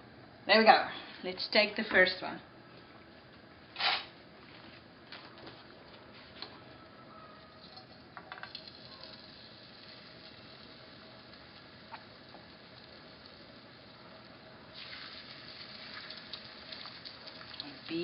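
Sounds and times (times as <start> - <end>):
chicken sizzling in a frying pan: 8.3 - 18.0.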